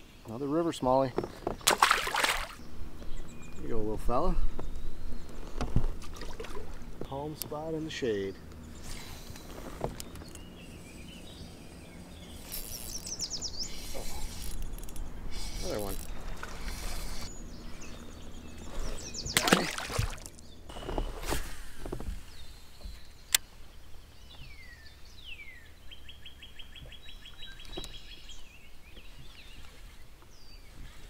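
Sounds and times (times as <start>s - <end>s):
fish splashing beside kayak: 1.5s - 2.6s, 5.8s - 7.0s, 13.7s - 17.3s, 18.7s - 22.3s
bird trilling: 12.2s - 19.9s.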